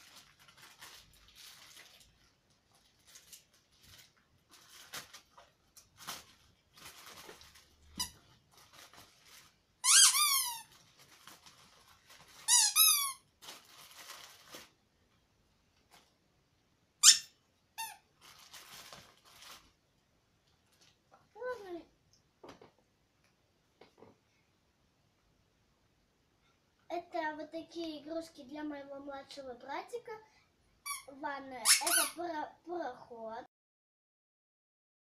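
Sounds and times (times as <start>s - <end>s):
plastic bag rustling: 0.0s - 14.9s, 18.1s - 19.9s
rubber toys squeaking: 7.9s - 8.3s, 9.8s - 10.7s, 12.4s - 13.2s, 17.0s - 18.0s, 30.8s - 32.2s.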